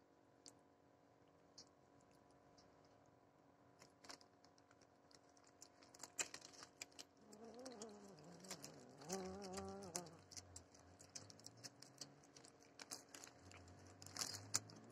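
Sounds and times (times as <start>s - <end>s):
small clicks: 3.8s - 14.9s
cat growling: 7.2s - 10.6s.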